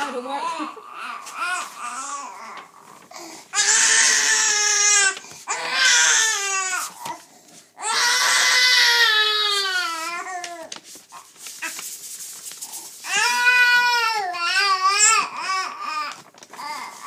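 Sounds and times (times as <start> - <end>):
baby crying: 0.3 - 2.8, 3.5 - 7.2, 7.8 - 10.7, 13.0 - 17.0.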